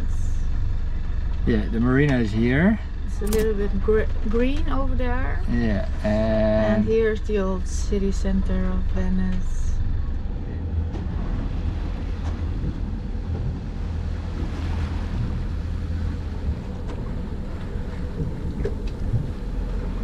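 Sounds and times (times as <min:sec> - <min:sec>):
boat engine low rumble: 0:00.0 - 0:20.0
water rushing along hull: 0:00.0 - 0:20.0
wind buffeting microphone: 0:10.4 - 0:20.0.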